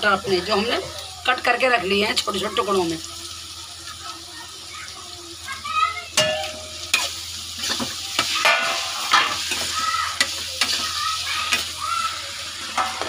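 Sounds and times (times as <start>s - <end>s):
onion sizzling in pan: 0.0s - 13.0s
spatula scraping pan: 6.9s - 11.8s.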